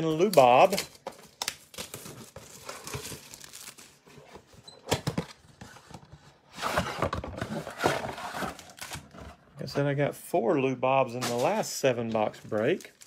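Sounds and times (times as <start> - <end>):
cardboard box packaging rustling: 0.2 - 9.4.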